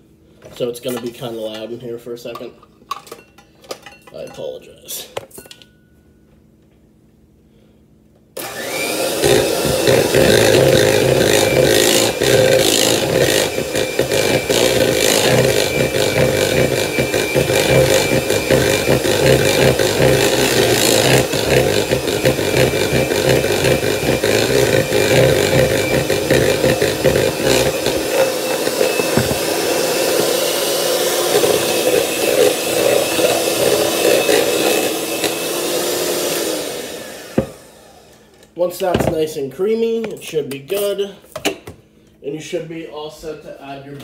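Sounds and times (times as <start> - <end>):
electric hand mixer running: 8.4 - 38.3.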